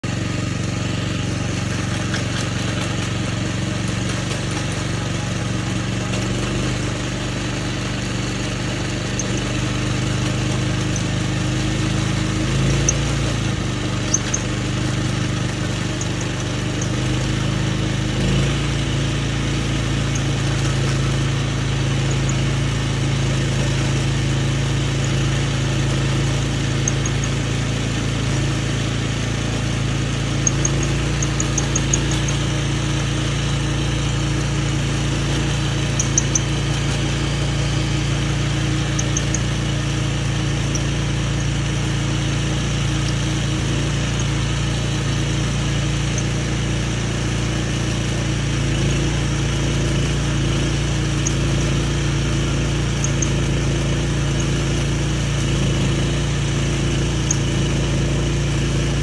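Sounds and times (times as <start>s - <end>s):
earth auger engine under load: 0.0s - 59.0s.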